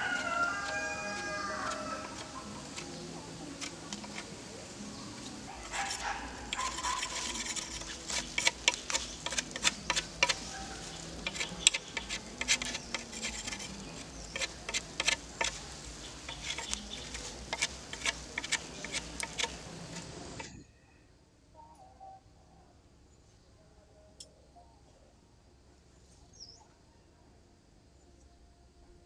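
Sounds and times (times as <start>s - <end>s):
knife scraping wood: 0.0s - 20.6s.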